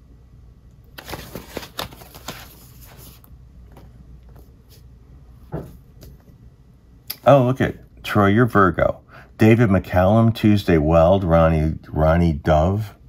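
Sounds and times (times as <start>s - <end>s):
cardboard record jacket rustling: 1.0s - 3.3s.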